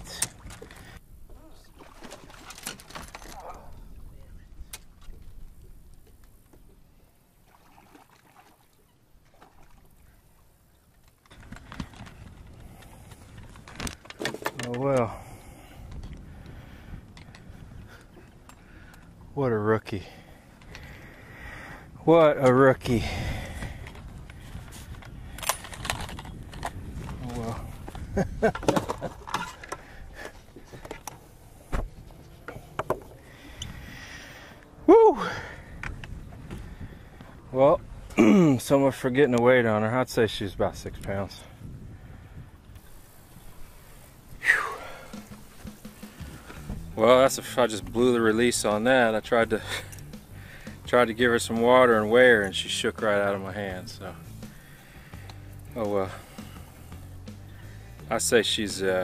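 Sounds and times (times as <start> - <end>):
light wind: 0.0 - 59.0
quiet water: 0.0 - 59.0
fishing gear knocking and clicking: 23.6 - 31.2.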